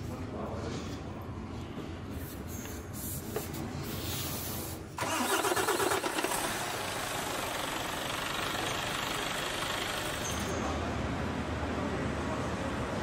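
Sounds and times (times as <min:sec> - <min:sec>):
truck engine starting: 0:05.0 - 0:10.4.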